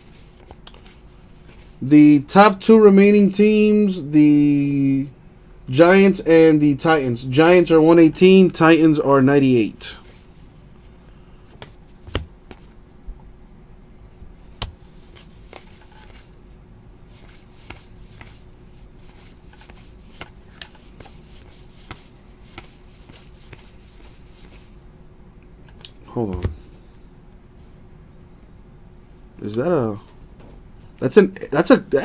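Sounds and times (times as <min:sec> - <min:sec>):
cards being flipped through: 0:00.0 - 0:01.8, 0:11.5 - 0:12.8, 0:14.6 - 0:16.4, 0:17.2 - 0:18.4, 0:19.0 - 0:24.8
faint steady hum: 0:00.0 - 0:32.0
card edges clicking: 0:11.5 - 0:12.7.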